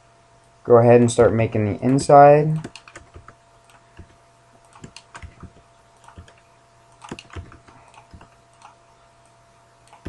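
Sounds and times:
faint electrical hum: 0.0 - 10.0
keyboard keystrokes: 1.8 - 6.4, 7.0 - 8.8.

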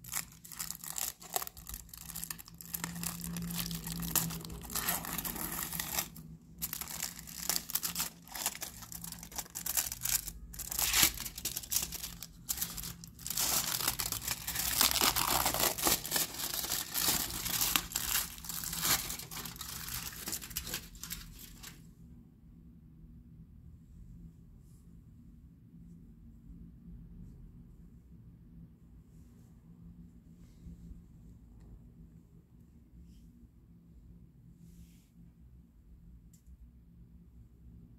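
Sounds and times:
foil wrapper crinkling and tearing: 0.0 - 21.7.

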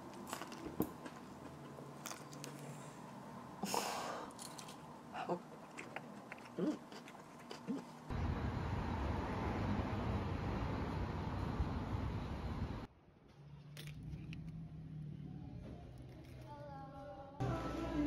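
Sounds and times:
person chewing: 5.3 - 8.1.

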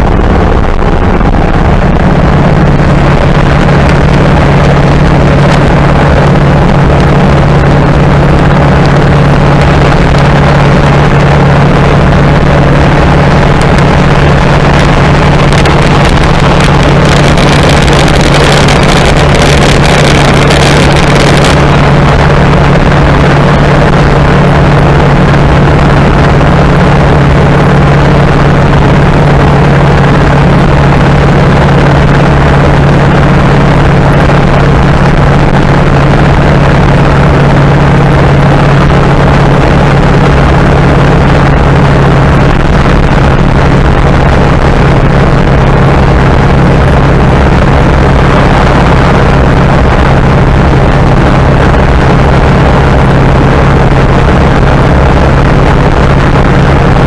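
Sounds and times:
car engine droning: 0.0 - 57.0
road noise: 0.0 - 57.0
wind noise: 0.0 - 57.0.

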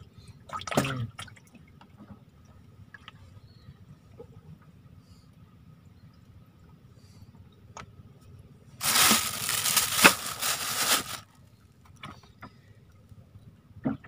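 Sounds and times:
close rustling and crinkling: 8.8 - 11.3.

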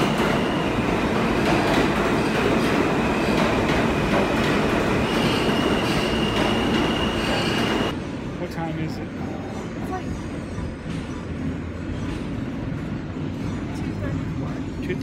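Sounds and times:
subway train rumbling past: 0.0 - 15.0
high squeal: 5.0 - 7.9.

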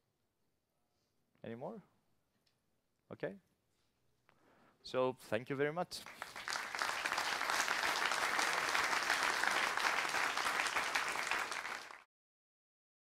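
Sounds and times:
audience applauding: 6.0 - 12.1.

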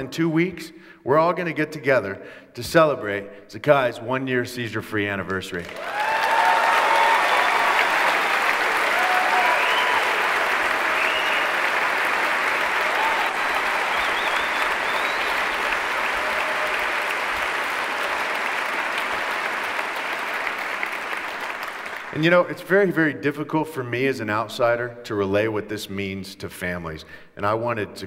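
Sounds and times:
audience applauding: 5.5 - 22.3
shouts and whoops: 5.7 - 11.6, 12.8 - 15.4, 16.0 - 17.1.

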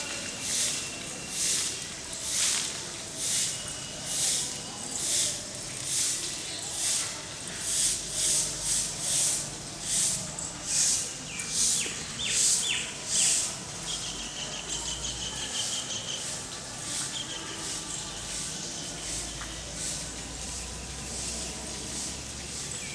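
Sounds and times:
insect rhythmic hiss: 16.9 - 22.6.

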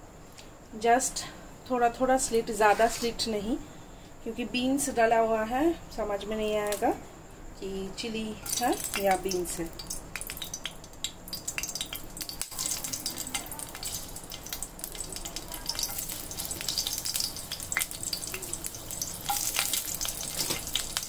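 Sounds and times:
chillies sizzling in hot oil: 8.0 - 21.0.

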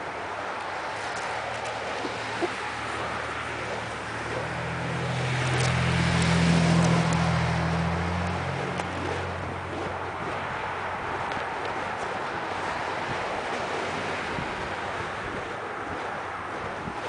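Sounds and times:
steady rushing noise: 0.0 - 17.0
car driving past: 2.2 - 10.2.

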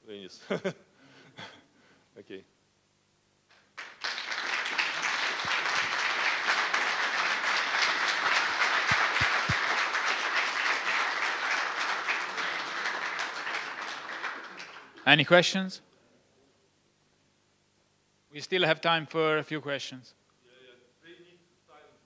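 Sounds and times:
audience applauding: 3.6 - 15.3.

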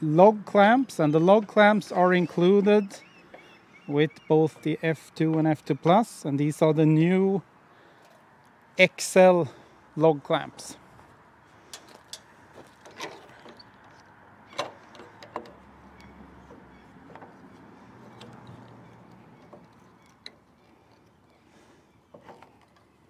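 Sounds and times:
light knocks and clicks: 11.7 - 21.1.

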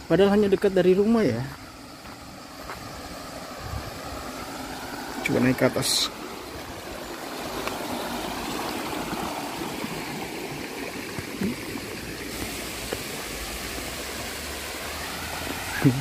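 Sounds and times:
stream flowing over rocks: 0.0 - 16.0.

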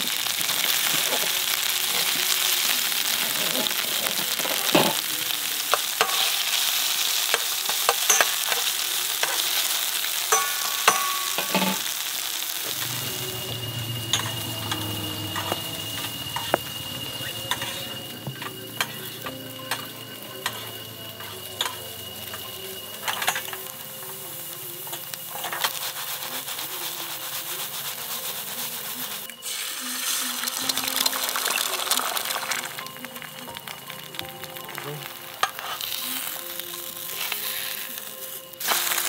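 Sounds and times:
meat sizzling in a frying pan: 0.0 - 39.0
utensil clicking and scraping a pan: 3.4 - 12.0.

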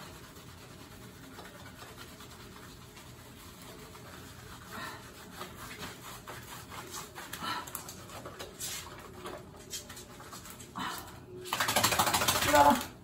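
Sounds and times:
wet rubbing of foam and fur: 0.0 - 7.4.

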